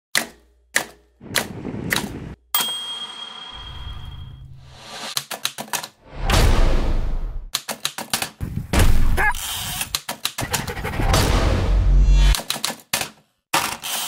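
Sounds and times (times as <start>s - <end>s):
thin high tone: 2.6s - 4.6s.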